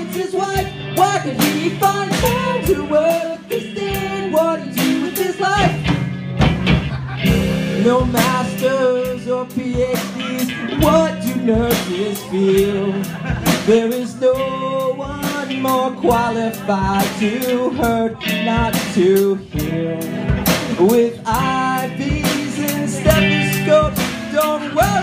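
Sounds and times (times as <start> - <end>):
man singing into a microphone: 0.0 - 5.9, 7.6 - 25.0
drum kit beat: 0.0 - 25.0
electric guitar: 0.0 - 25.0.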